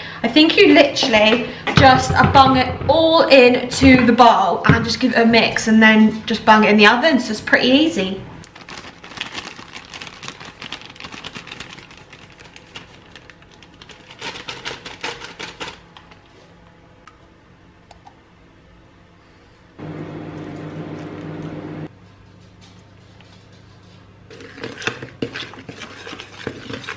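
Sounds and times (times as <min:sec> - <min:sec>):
paper packet rustling: 0:08.4 - 0:16.2
kitchen appliance humming: 0:19.8 - 0:21.9.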